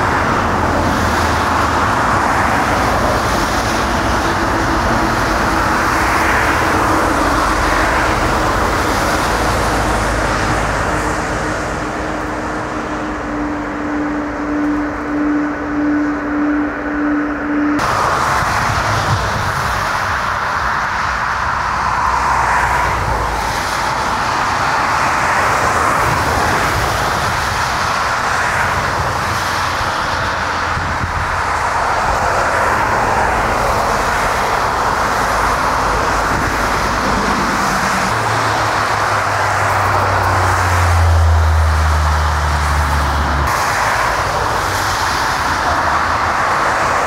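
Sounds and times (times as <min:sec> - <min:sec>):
jet engine rushing noise: 0:00.0 - 0:47.0
low hum: 0:10.6 - 0:19.6.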